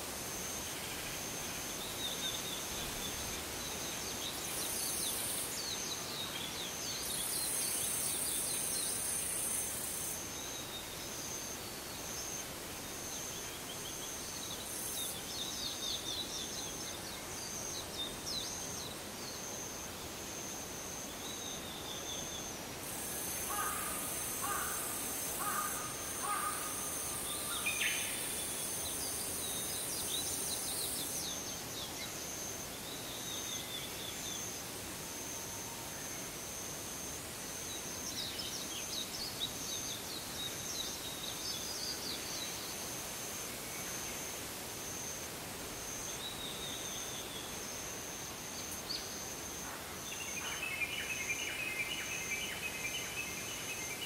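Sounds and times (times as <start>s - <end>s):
pulsing insect trill: 0.1s - 34.6s.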